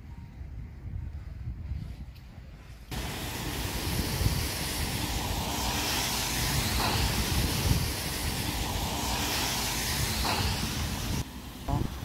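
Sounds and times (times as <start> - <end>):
vehicle tyres on wet road: 2.9 - 12.0.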